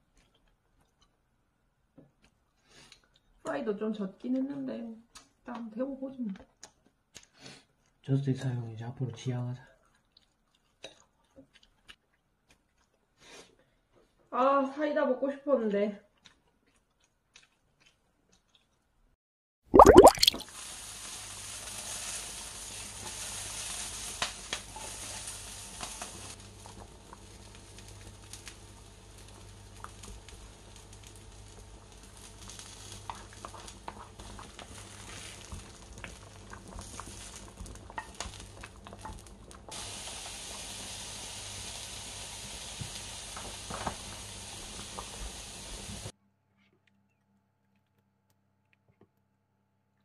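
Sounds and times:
food sizzling in a frying pan: 20.4s - 46.1s.

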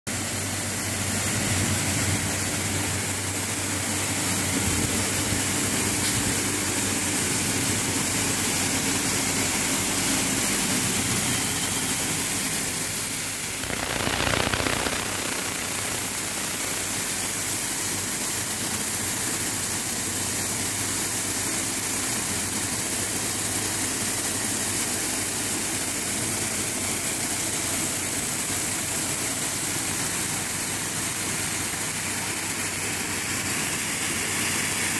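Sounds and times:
machine hum: 0.6s - 18.7s
short rush of noise: 13.4s - 17.8s.

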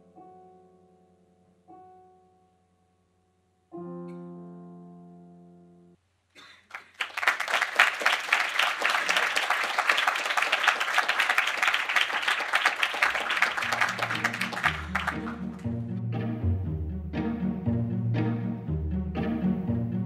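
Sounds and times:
audience applauding: 6.7s - 15.8s
low string music: 13.8s - 20.0s.

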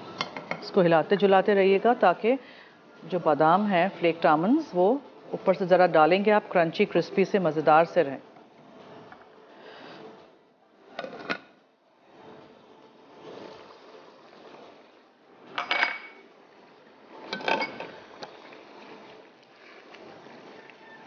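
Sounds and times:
pots and lids clanking: 11.0s - 11.5s, 15.6s - 16.2s, 17.2s - 18.0s.

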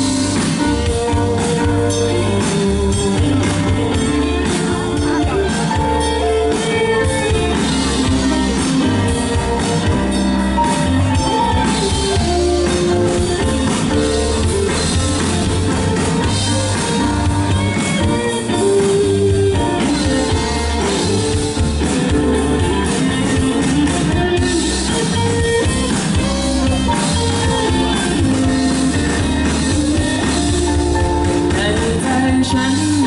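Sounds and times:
live rock band playing: 0.0s - 33.0s.

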